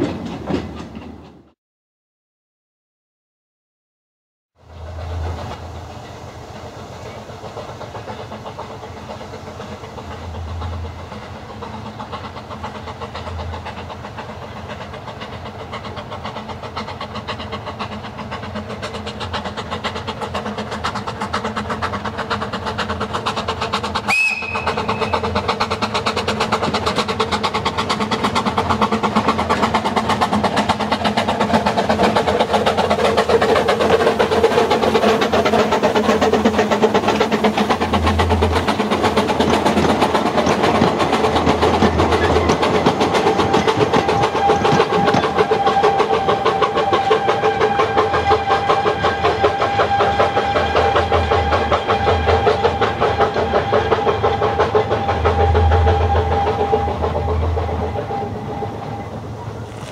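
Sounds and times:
steam locomotive exhaust beats: 4.6s - 59.9s
high steam whistle: 24.0s - 25.5s, 37.6s - 59.9s.

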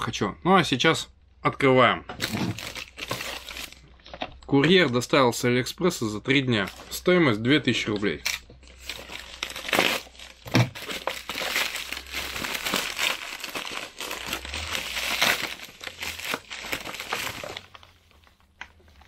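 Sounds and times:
plastic bag crinkling: 2.2s - 4.3s, 8.3s - 19.0s.

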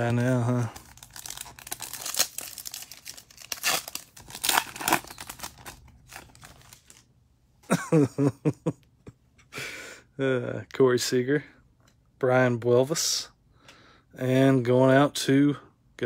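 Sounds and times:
foil wrapper crinkling and tearing: 0.0s - 7.1s.

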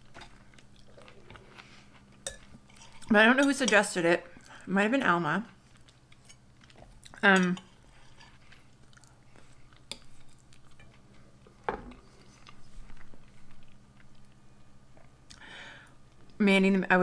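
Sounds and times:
wet chewing with small clicks: 5.5s - 11.2s, 12.2s - 15.4s.

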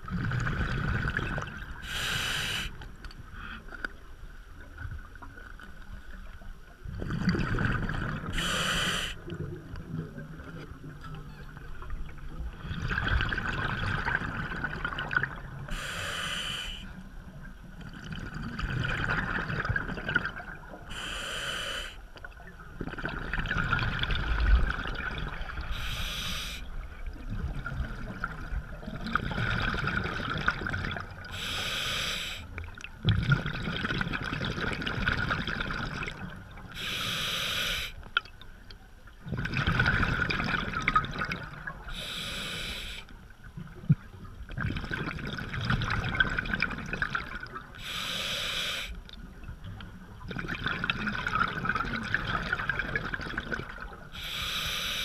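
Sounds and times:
exhaled bubbles rumbling underwater: 0.0s - 21.2s, 22.0s - 37.2s, 37.9s - 54.9s
regulator inhale hiss: 1.8s - 2.8s, 8.4s - 9.2s, 15.7s - 17.0s, 20.9s - 22.0s, 25.7s - 26.7s, 31.3s - 32.5s, 36.8s - 38.0s, 41.9s - 43.1s, 47.8s - 49.0s, 54.1s - 55.0s.

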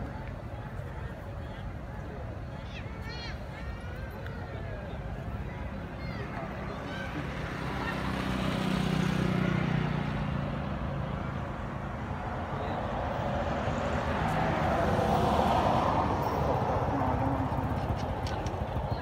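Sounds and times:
low engine hum: 3.4s - 19.0s.

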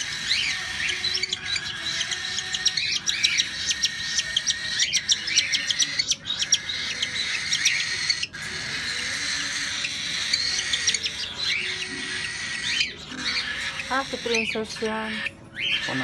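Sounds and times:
cockatiels chirping: 0.0s - 16.0s.

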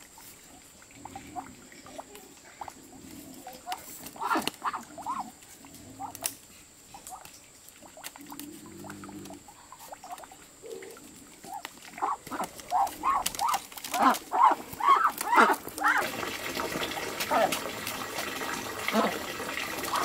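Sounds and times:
geese honking: 11.5s - 16.1s.

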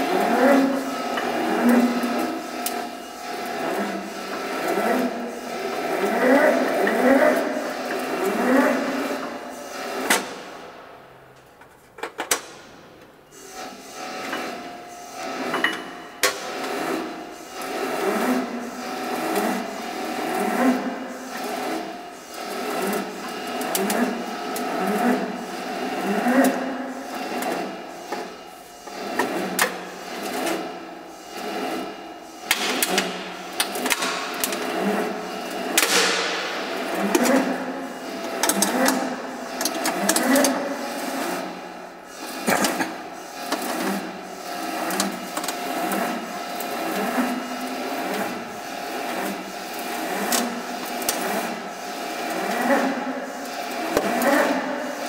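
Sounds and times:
roll forming machine clatter: 31.4s - 41.6s, 42.2s - 55.0s.

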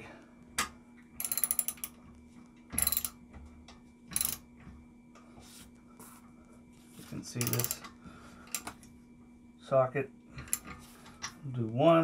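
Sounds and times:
ratchet wrench clicking: 1.2s - 2.0s, 2.8s - 3.1s, 7.4s - 7.9s.

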